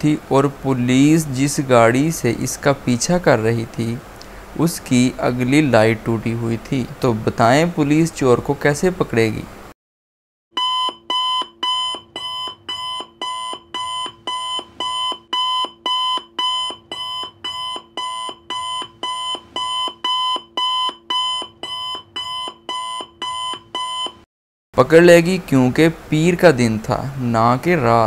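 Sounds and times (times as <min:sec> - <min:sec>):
countdown clock ticks: 0:10.6 - 0:24.2.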